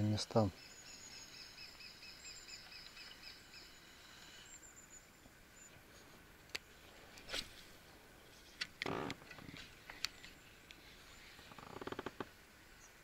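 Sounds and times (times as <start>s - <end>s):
bird chirping: 0.0s - 5.8s.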